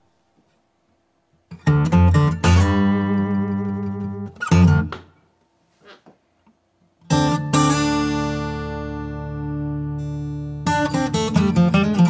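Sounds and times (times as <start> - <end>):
acoustic guitar strumming: 1.5 - 5.1, 7.0 - 12.0.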